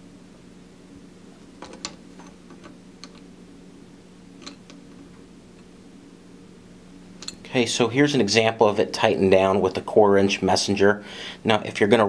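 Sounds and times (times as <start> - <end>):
steady low hum: 0.0 - 12.0
metallic clicks and taps: 1.6 - 3.3.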